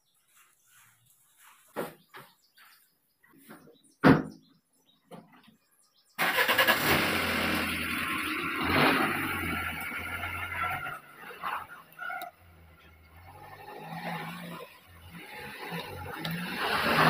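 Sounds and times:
car engine running: 0:06.3 - 0:17.0.

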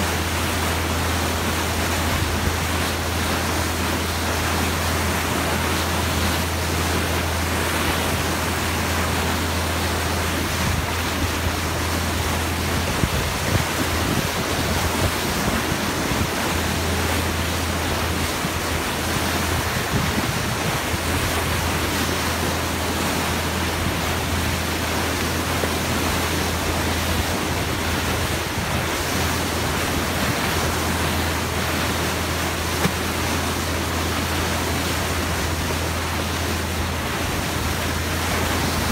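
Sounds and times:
water rushing from bow wave: 0:00.0 - 0:38.9
wind buffeting microphone: 0:10.4 - 0:17.0, 0:17.7 - 0:21.8.

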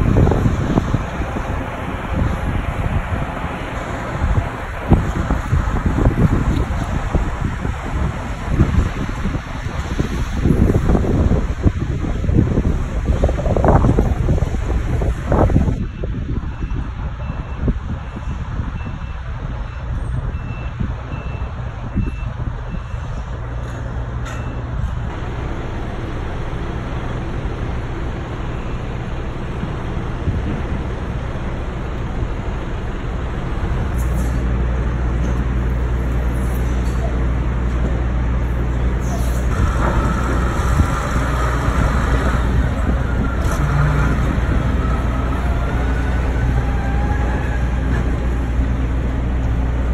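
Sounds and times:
forklift diesel engine drone: 0:00.0 - 0:49.9
steady low rumble: 0:00.0 - 0:49.9
reversing alarm beeping: 0:15.8 - 0:23.1.

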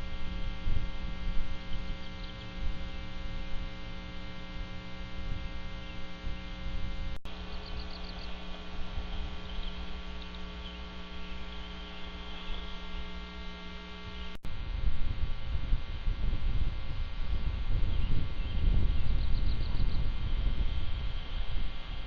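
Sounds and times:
electrical mains hum: 0:00.0 - 0:22.0
faint high chirps: 0:07.3 - 0:13.2.

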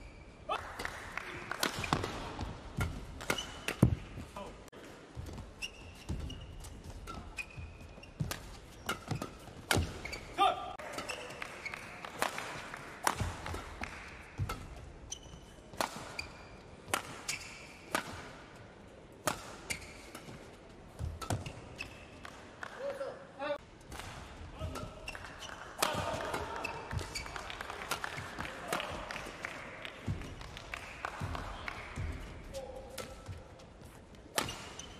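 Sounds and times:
rackets striking shuttlecock: 0:00.8 - 0:04.1, 0:07.0 - 0:10.2, 0:12.2 - 0:18.3, 0:21.0 - 0:22.4, 0:34.3 - 0:34.9
shoes squeaking on court: 0:02.8 - 0:04.4, 0:05.1 - 0:11.9, 0:14.4 - 0:18.0, 0:19.4 - 0:22.2, 0:26.3 - 0:27.6, 0:32.6 - 0:34.9.

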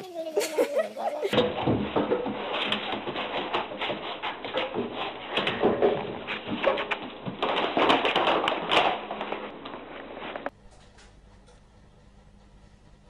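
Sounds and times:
paws scrabbling on wooden floor: 0:01.4 - 0:10.5
rustling bag: 0:01.4 - 0:10.5.

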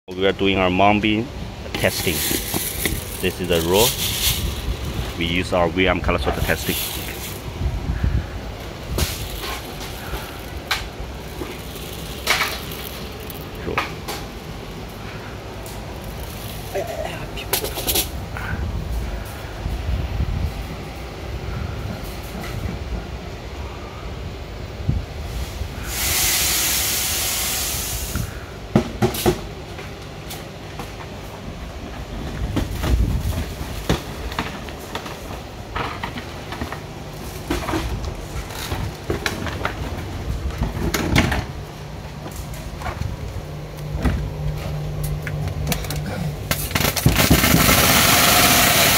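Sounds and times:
machine hum: 0:00.3 - 0:25.9, 0:29.6 - 0:48.9
beans pouring into hopper: 0:01.8 - 0:05.4, 0:06.4 - 0:07.4, 0:11.3 - 0:13.6, 0:46.8 - 0:48.9
short hissing bursts: 0:25.3 - 0:28.6.

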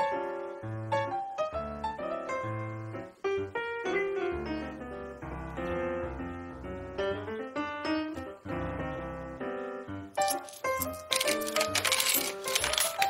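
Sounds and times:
keyboard music: 0:03.1 - 0:13.0.

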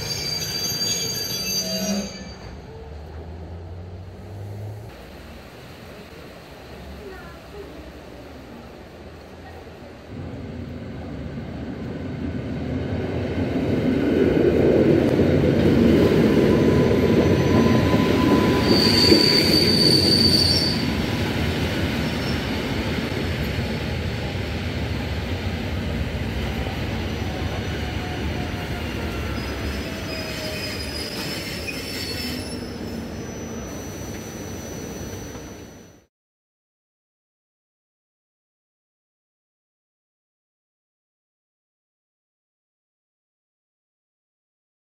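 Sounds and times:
electric train braking: 0:00.0 - 0:02.7, 0:16.1 - 0:21.4, 0:27.1 - 0:36.0
high brake squeal: 0:00.0 - 0:02.9, 0:16.4 - 0:21.2, 0:28.0 - 0:36.1
train rumble: 0:01.6 - 0:36.0.

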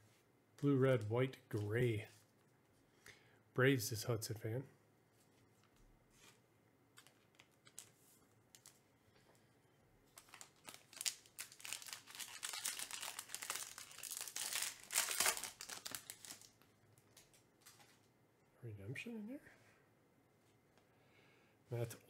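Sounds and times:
foil wrapper tearing and crinkling: 0:10.1 - 0:17.4.

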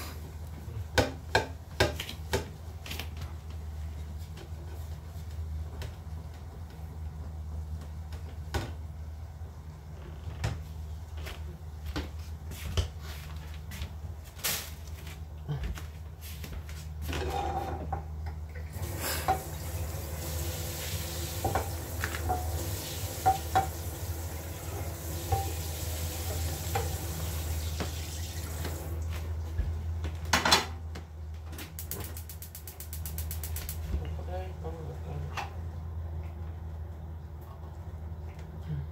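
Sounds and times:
tap running: 0:18.6 - 0:29.7
steady low hum: 0:30.9 - 0:38.9
fast run of clicks: 0:31.8 - 0:33.9.

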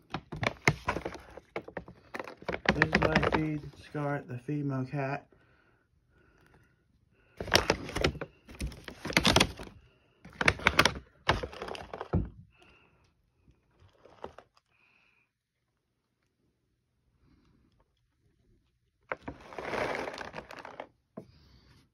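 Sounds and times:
plastic bag crinkling: 0:00.0 - 0:04.0, 0:07.4 - 0:12.5, 0:13.7 - 0:14.7, 0:19.1 - 0:21.0.

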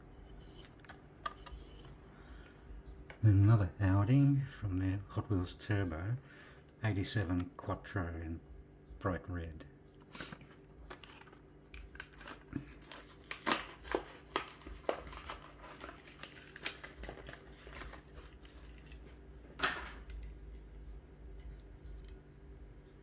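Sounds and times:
plastic blister crinkling: 0:10.5 - 0:20.2
cardboard tearing: 0:11.9 - 0:18.4.

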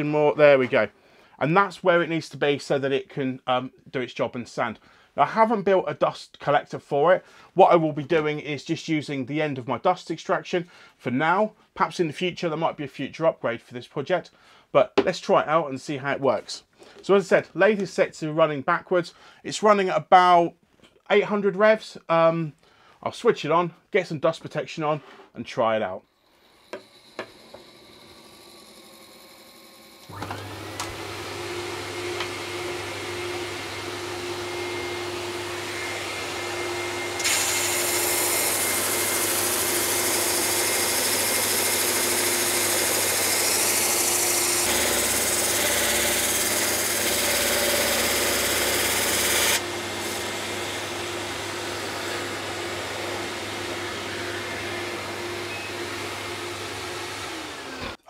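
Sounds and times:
dust extractor whine: 0:26.3 - 0:58.0
drum sander hissing on wood: 0:26.4 - 0:58.0.

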